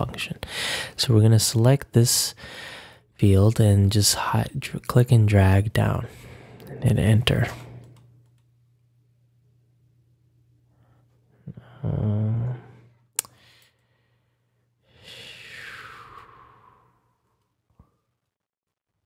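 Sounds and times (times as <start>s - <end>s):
low electrical hum: 0.0s - 17.1s
person humming: 11.4s - 12.8s
breathy exhale: 13.4s - 17.3s.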